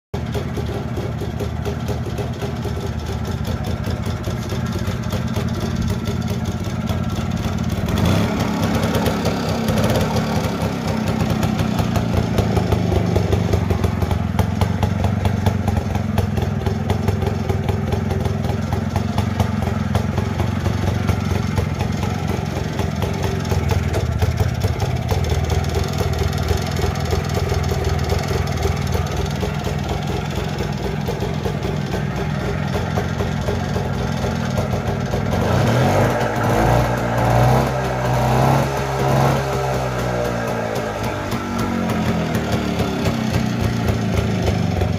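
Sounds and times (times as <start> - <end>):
two-stroke motorcycle engine idling: 0.2 - 44.9.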